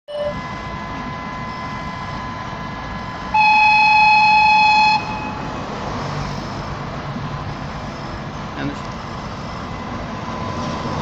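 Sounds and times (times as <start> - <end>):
low engine rumble: 0.1 - 11.0
locomotive horn blast: 3.3 - 5.6.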